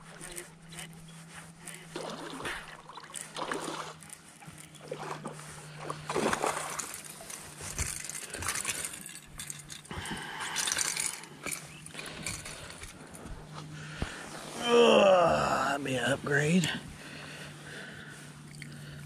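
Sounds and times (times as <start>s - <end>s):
steady low hum: 0.0s - 19.0s
fish splashing at water surface: 2.0s - 4.0s, 4.8s - 7.2s.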